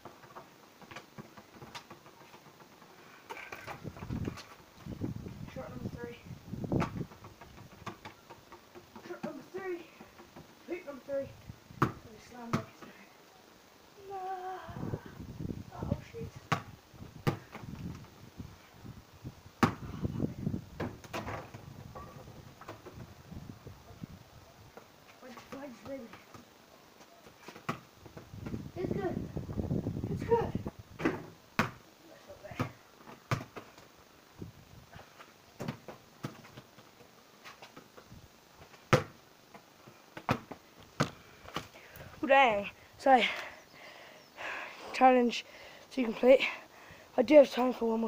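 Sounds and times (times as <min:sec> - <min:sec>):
ball hitting hoop and bouncing: 0:11.8 - 0:12.7, 0:16.5 - 0:17.7, 0:19.6 - 0:19.9, 0:20.8 - 0:23.0, 0:31.0 - 0:31.8, 0:32.5 - 0:33.6, 0:35.6 - 0:36.6, 0:38.9 - 0:39.2, 0:40.2 - 0:41.7
football knocking on pavement: 0:11.8 - 0:12.7, 0:16.5 - 0:17.7, 0:31.0 - 0:31.8, 0:32.5 - 0:33.7, 0:38.9 - 0:39.2, 0:40.2 - 0:41.7.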